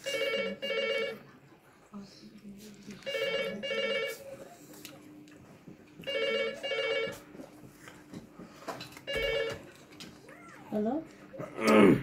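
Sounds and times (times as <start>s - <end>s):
telephone ringing: 0.0s - 1.3s, 3.0s - 4.6s, 6.0s - 7.5s, 9.0s - 9.8s.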